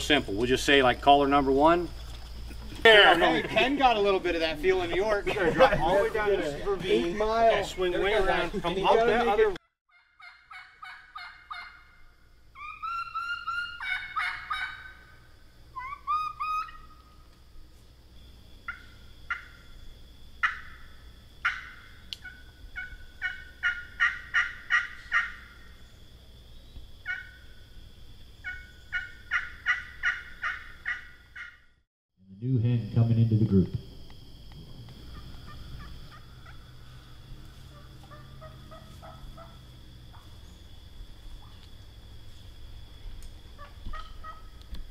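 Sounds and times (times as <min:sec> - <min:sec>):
turkey call clucks: 0:09.9 - 0:12.0, 0:12.6 - 0:17.3, 0:18.7 - 0:19.7, 0:20.4 - 0:25.7, 0:27.0 - 0:27.4, 0:28.4 - 0:31.6, 0:34.9 - 0:40.3, 0:43.5 - 0:44.8
turkey call yelps: 0:09.9 - 0:17.3, 0:18.7 - 0:19.7, 0:20.4 - 0:25.8, 0:27.0 - 0:27.5, 0:28.4 - 0:31.6, 0:35.1 - 0:40.3, 0:43.5 - 0:44.6.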